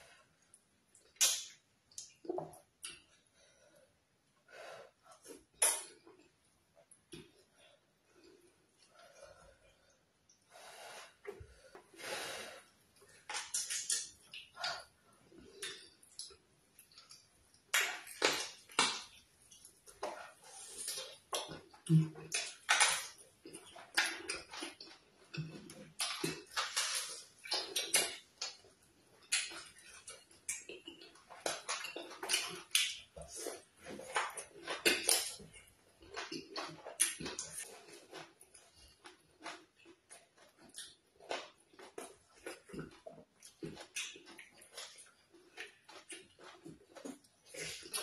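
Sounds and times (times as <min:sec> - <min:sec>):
wet mouth clicks and smacks: 0:00.5 - 0:03.2, 0:05.6 - 0:06.0, 0:13.2 - 0:14.9, 0:20.8 - 0:33.4
noisy breaths: 0:08.3 - 0:12.8
chewing and wet lip-smacking: 0:13.0 - 0:48.0.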